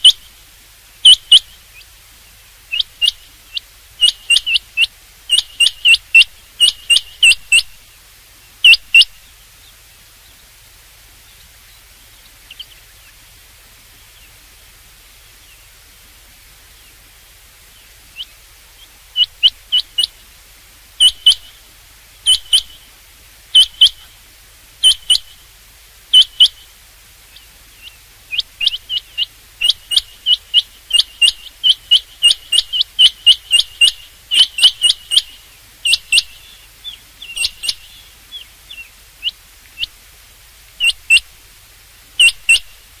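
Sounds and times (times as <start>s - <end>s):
quail whistled calls: 0.0s - 0.4s, 1.0s - 1.8s, 2.7s - 7.8s, 8.6s - 9.4s, 19.1s - 20.2s, 21.0s - 21.6s, 22.2s - 22.9s, 23.5s - 24.1s, 24.8s - 25.4s, 26.1s - 26.7s, 27.3s - 40.0s, 40.8s - 41.3s, 42.2s - 42.8s.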